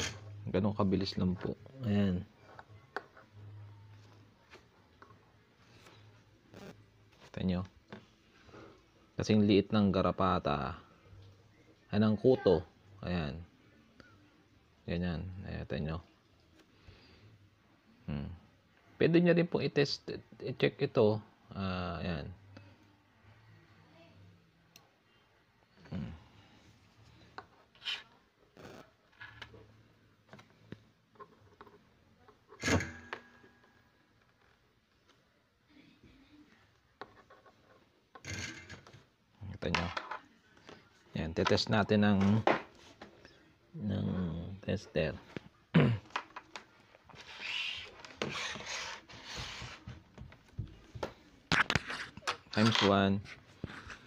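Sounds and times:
scraping and rubbing: 0:27.5 - 0:29.4, 0:47.1 - 0:50.0, 0:51.5 - 0:54.0.

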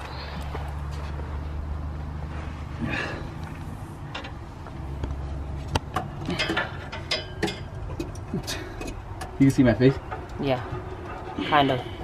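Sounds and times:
sharp clicks and metallic knocks: 0:04.0 - 0:11.8.

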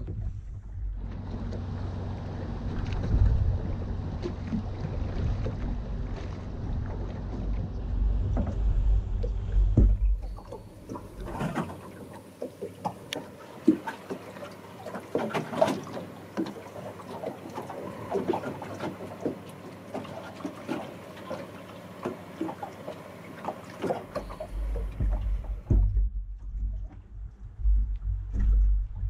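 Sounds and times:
water lapping against boat hull: 0:00.0 - 0:29.0
wind buffeting microphone: 0:02.1 - 0:11.6.

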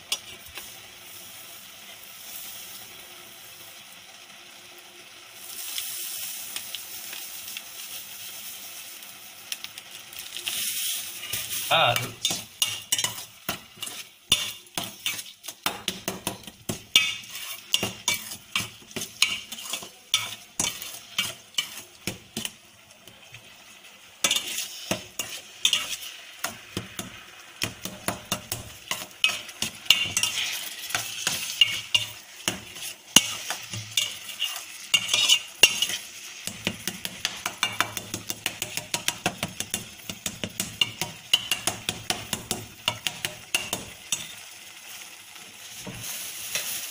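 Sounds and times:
curds sizzling: 0:00.0 - 0:46.9
spoon scraping steel pan: 0:10.5 - 0:22.5, 0:24.3 - 0:26.6, 0:27.8 - 0:44.4.

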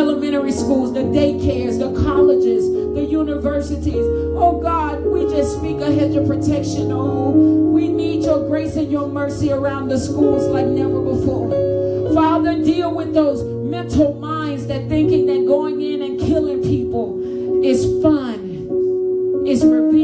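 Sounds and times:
woman singing into a microphone: 0:00.0 - 0:11.5.

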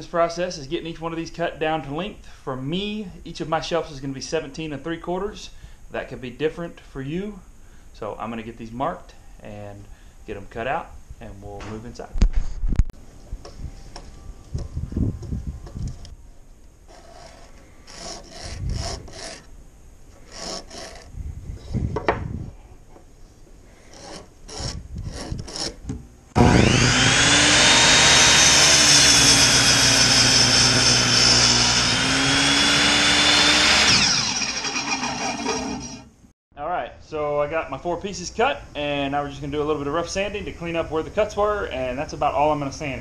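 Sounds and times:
pen scratching on wood: 0:20.2 - 0:21.1
electric miter saw cutting wood: 0:26.4 - 0:36.2.

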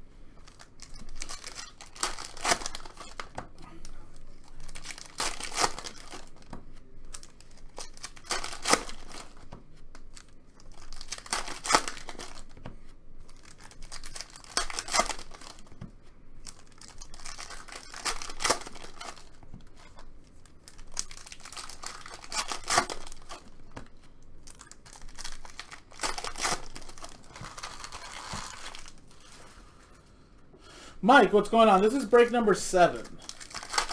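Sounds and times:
foil wrappers tearing and crinkling: 0:00.4 - 0:06.5, 0:07.1 - 0:09.4, 0:10.0 - 0:12.5, 0:13.3 - 0:15.7, 0:16.4 - 0:23.7, 0:24.4 - 0:29.4, 0:32.7 - 0:33.9.

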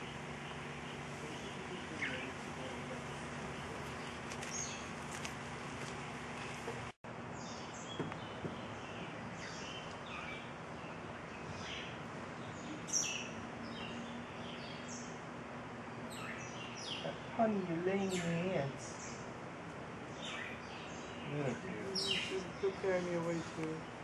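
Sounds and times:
small birds chirping: 0:00.0 - 0:05.5, 0:06.4 - 0:24.0
outdoor background hiss: 0:00.0 - 0:24.0.

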